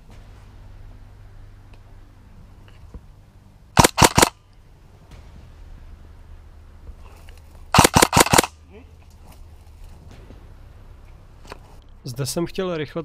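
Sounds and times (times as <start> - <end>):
airsoft gun firing bursts: 3.8 - 4.3, 7.7 - 8.5.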